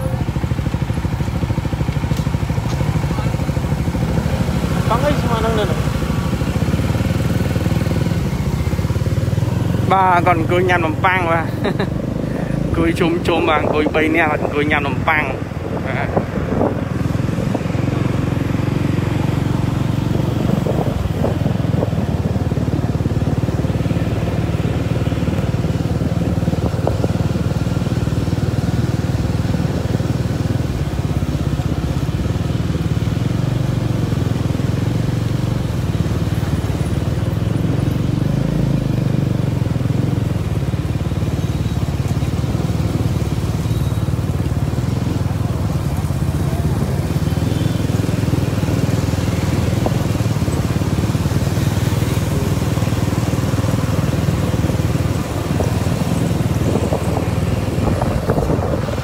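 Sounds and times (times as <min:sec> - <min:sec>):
motorcycle engines rumbling: 0:00.0 - 0:59.0
road noise: 0:00.0 - 0:59.0.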